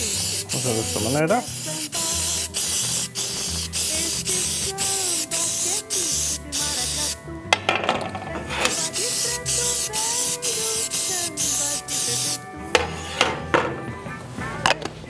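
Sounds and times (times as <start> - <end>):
aerosol spray hissing: 0.0 - 7.2, 8.6 - 12.5
metal pan clattering: 7.6 - 8.8.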